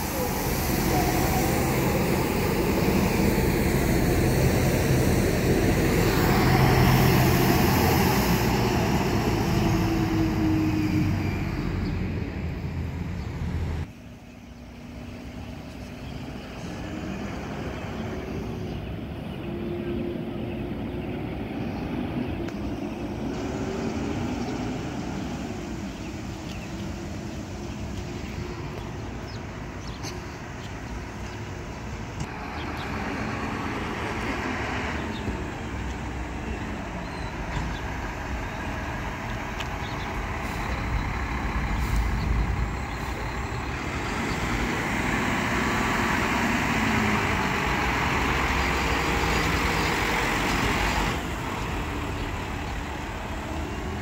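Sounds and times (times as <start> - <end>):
distant truck engine: 0.0 - 54.0
street traffic: 0.0 - 54.0
garbage truck engine running: 37.6 - 54.0.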